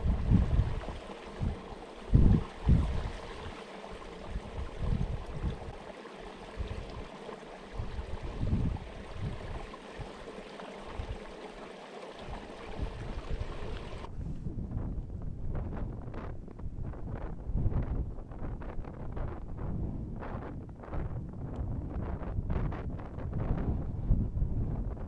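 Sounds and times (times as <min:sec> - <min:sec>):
wind buffeting microphone: 0:00.0 - 0:11.4, 0:12.2 - 0:25.0.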